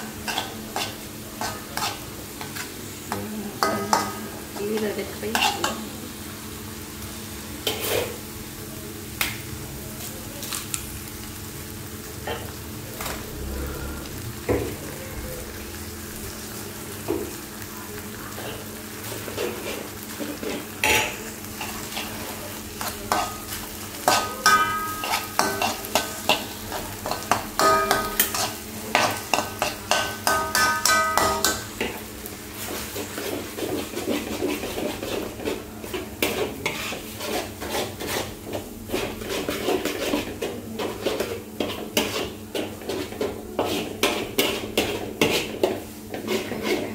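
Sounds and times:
noodles sizzling in wok: 0.0s - 46.9s
metal spatula scraping: 0.3s - 2.6s, 4.8s - 5.8s, 7.6s - 8.2s, 18.3s - 32.0s, 32.6s - 46.9s
spatula clanking on wok: 3.6s - 5.8s, 19.3s - 22.2s, 22.8s - 32.0s.

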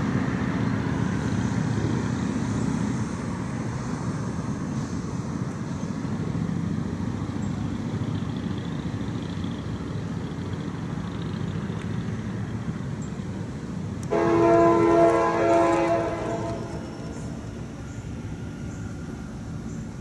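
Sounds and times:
diesel locomotive rumbling: 0.0s - 20.0s
locomotive air horn chord: 14.0s - 17.5s.

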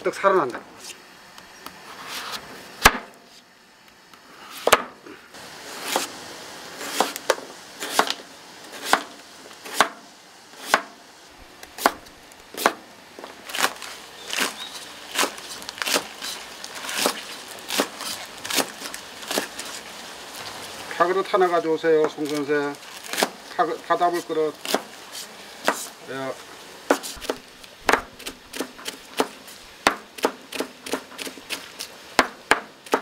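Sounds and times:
cleaver chopping on plastic board: 4.7s - 5.0s, 9.7s - 10.0s, 12.6s - 12.8s, 25.6s - 25.9s, 26.9s - 31.6s, 32.2s - 33.0s.

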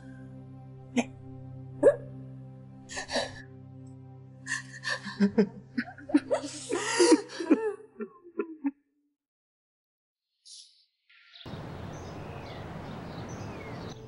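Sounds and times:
women sobbing and wailing: 4.5s - 8.7s.

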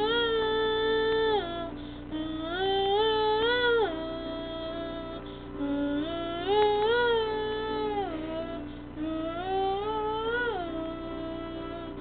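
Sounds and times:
child singing a slow ballad: 0.0s - 12.0s.

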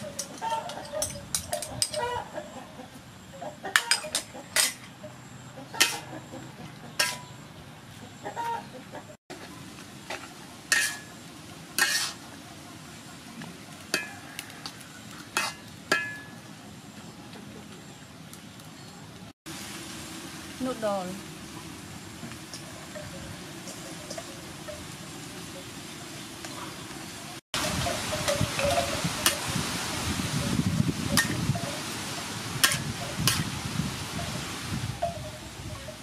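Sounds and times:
metal spatula clanking on wok: 0.0s - 2.1s, 3.7s - 4.9s, 5.8s - 7.4s, 10.1s - 11.2s, 11.8s - 12.2s, 13.9s - 14.5s, 15.3s - 16.4s, 32.6s - 33.5s
food sizzling: 9.3s - 16.4s, 19.5s - 35.6s.

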